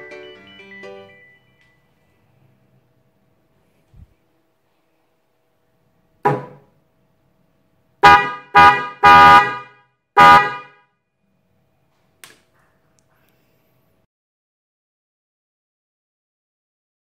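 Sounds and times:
car horns honking: 8.0 - 10.9.

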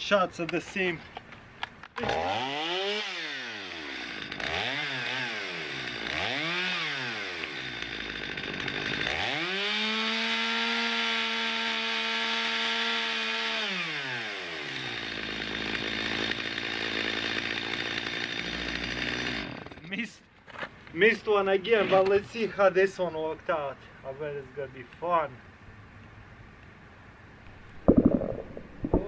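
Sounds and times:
chainsaw revving: 2.0 - 19.9.

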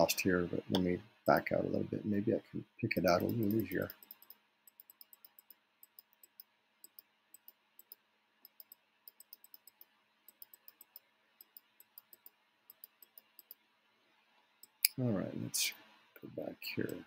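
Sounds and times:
computer mouse clicks: 3.1 - 13.6.

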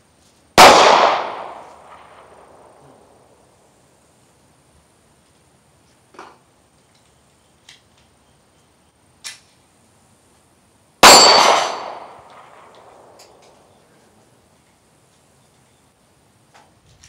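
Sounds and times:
pistol shot with echo: 0.6 - 3.3, 11.0 - 13.7.

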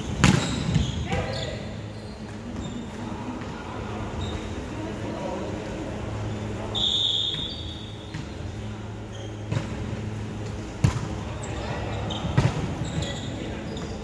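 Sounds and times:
shoe squeak: 0.0 - 3.0, 4.1 - 4.6, 6.7 - 8.4, 9.0 - 9.6, 11.4 - 14.0
steady low hum: 1.5 - 14.0.

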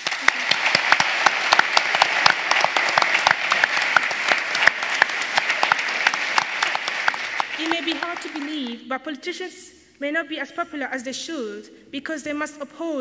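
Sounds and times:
audience applause: 0.0 - 8.8.

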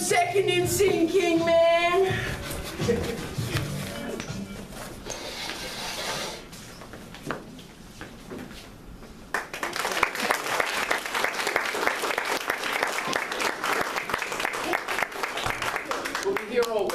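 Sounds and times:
audience applause: 9.3 - 16.9.

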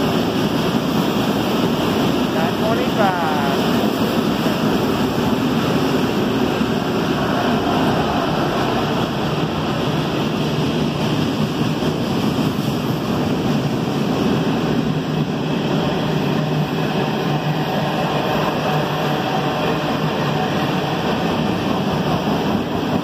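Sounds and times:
freight train rolling past: 0.0 - 23.0.

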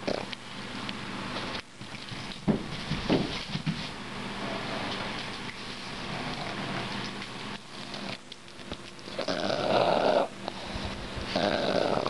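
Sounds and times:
dog snorty grunting: 9.2 - 10.4, 11.3 - 12.0.

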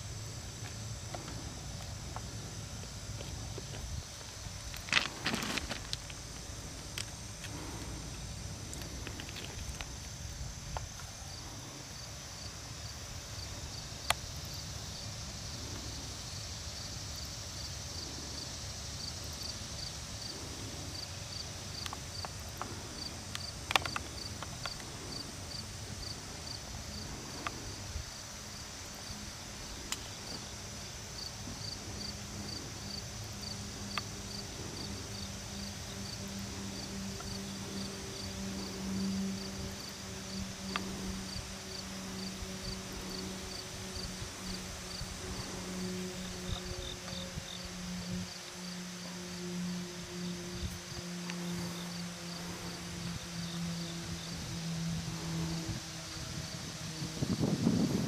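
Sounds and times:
high insect hiss: 0.0 - 58.0
insects chirping: 0.0 - 58.0
low steady hum: 0.0 - 58.0.

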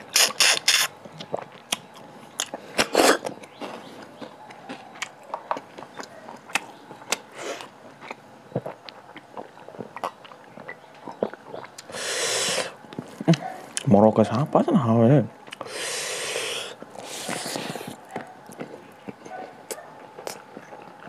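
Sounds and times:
loud slurp: 0.0 - 0.9, 11.8 - 12.8, 15.6 - 18.0
wet chewing and mouth clicks: 0.0 - 13.9, 15.4 - 21.0
breathy hiss: 11.9 - 12.8, 15.6 - 18.0.

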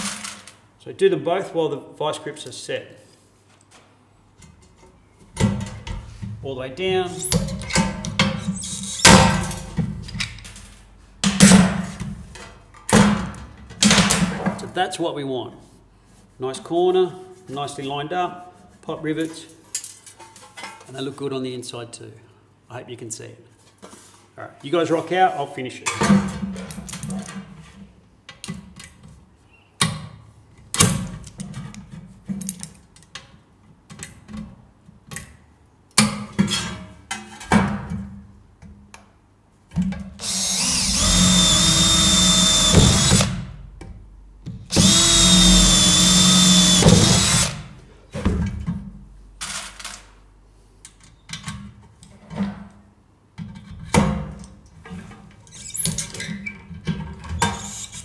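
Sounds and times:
cordless drill drilling sheet metal: 8.4 - 9.3, 40.2 - 43.4, 44.7 - 47.7.

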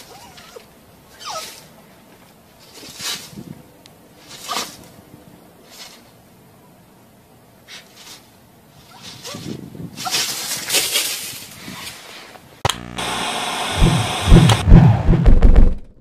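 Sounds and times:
sharp click: 12.6 - 13.1, 13.7 - 15.9
steady electronic buzz: 12.6 - 16.0.

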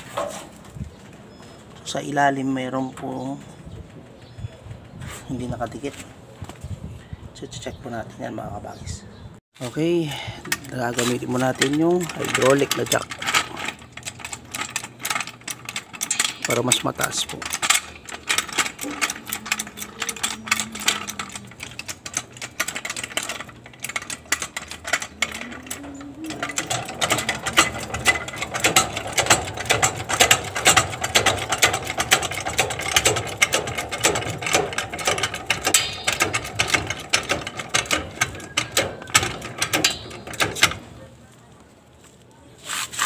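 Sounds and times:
floor jack pumping clicks: 10.4 - 41.0.

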